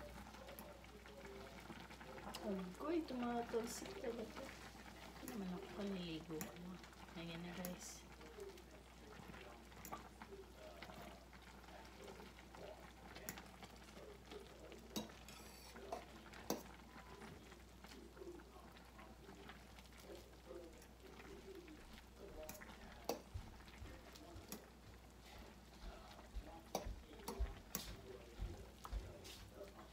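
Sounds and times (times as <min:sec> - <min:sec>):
soft bubbling: 0:00.0 - 0:29.9
stirring food in a pan: 0:00.0 - 0:29.9
utensil tapping against pan: 0:22.5 - 0:23.4, 0:26.6 - 0:28.1.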